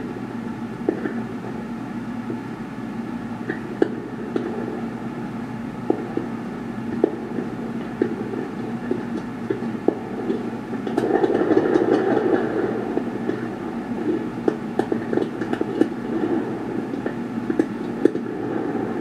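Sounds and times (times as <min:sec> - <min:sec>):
fireworks popping and banging: 0:08.9 - 0:12.6.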